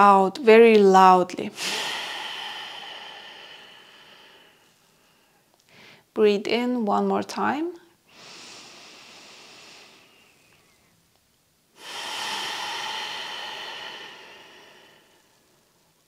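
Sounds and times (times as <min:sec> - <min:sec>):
woman breathing deeply: 0:01.5 - 0:06.1, 0:08.1 - 0:11.0, 0:11.8 - 0:16.0.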